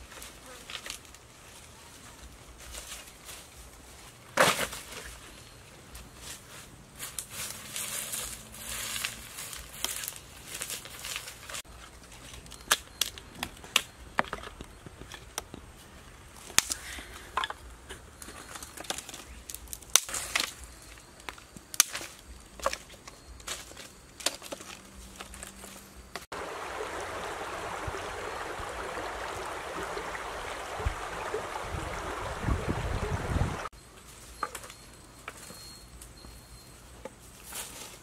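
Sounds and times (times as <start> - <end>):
dry leaves crunching: 6.0 - 12.6
dry sticks snapping and knocking: 12.2 - 15.6, 18.8 - 20.6, 21.2 - 25.6.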